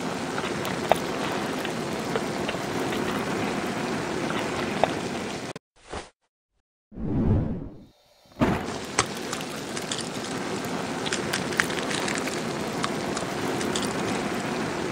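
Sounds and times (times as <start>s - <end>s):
seed burning with crackling hiss: 8.4s - 14.9s.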